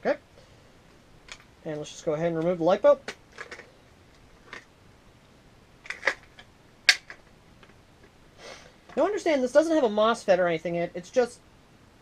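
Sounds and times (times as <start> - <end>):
clicks and knocks handling toy rifle: 2.4 - 3.7, 5.9 - 8.2.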